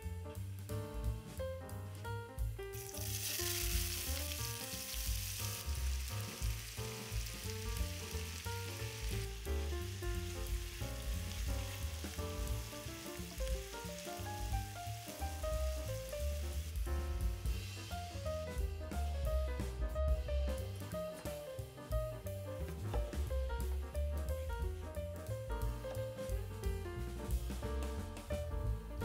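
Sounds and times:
background music: 0.0 - 29.0
food sizzling in a pan: 2.7 - 19.2.

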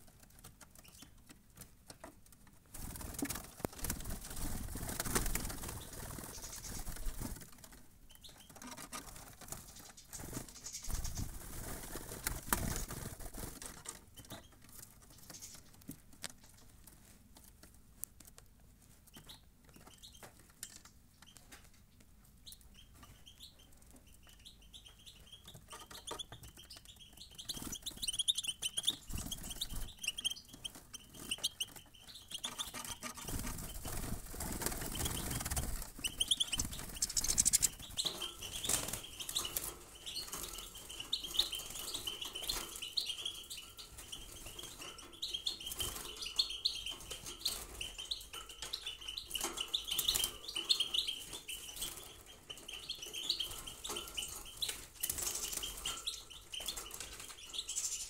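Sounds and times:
wing fluttering: 2.8 - 7.8, 8.5 - 14.0, 27.4 - 42.8
goldfinches twittering: 34.9 - 54.8.

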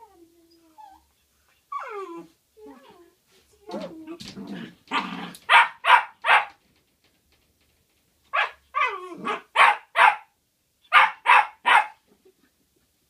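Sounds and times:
puppy growling: 3.8 - 5.5
puppy yapping: 10.9 - 12.0.

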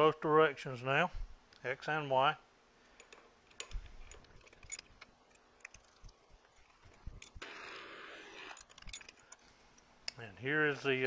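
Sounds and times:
metallic clicks and taps of tooling: 3.0 - 7.3.

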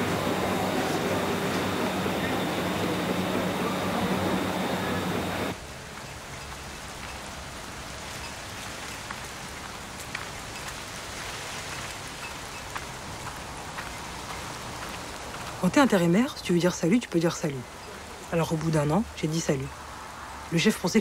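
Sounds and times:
machinery hum: 0.0 - 5.6
rain on wet pavement: 0.0 - 21.0.

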